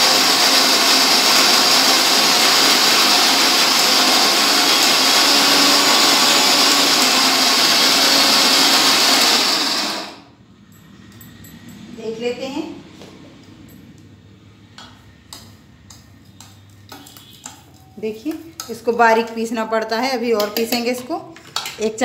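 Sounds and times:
mixer grinder running: 0:00.0 - 0:10.3.

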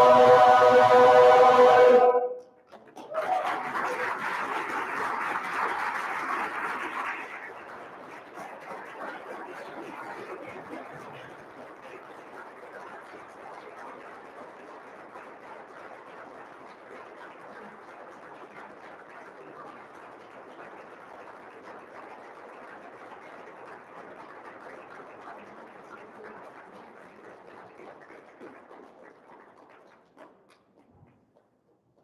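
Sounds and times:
audience applauding: 0:00.0 - 0:29.7.

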